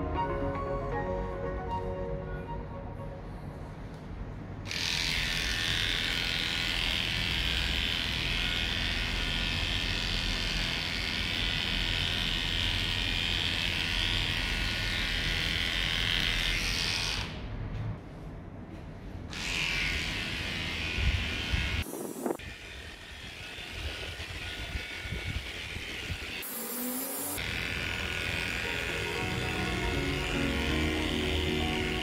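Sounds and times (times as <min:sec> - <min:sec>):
electric clippers buzzing: 0:04.7 - 0:17.4, 0:19.3 - 0:32.0.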